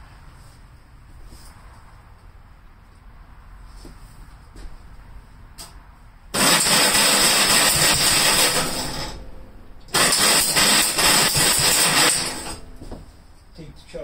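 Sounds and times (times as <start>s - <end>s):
tractor engine starting: 6.3s - 12.9s.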